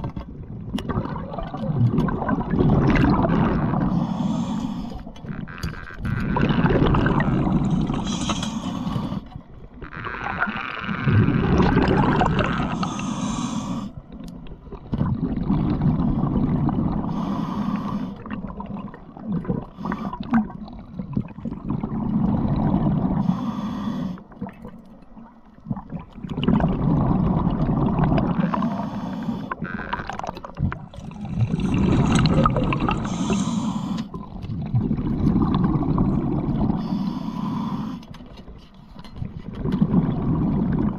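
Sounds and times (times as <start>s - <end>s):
rumbling rushes of bubbles: 0.0s - 4.0s, 6.2s - 8.4s, 10.0s - 13.0s, 14.6s - 17.1s, 18.2s - 23.2s, 24.4s - 28.7s, 29.9s - 33.4s, 34.2s - 36.8s, 39.2s - 40.9s
diver breathing through regulator: 3.8s - 5.4s, 7.3s - 9.5s, 12.5s - 14.0s, 17.0s - 18.3s, 19.7s - 20.3s, 23.0s - 24.4s, 28.5s - 29.8s, 31.2s - 34.3s, 36.5s - 38.3s.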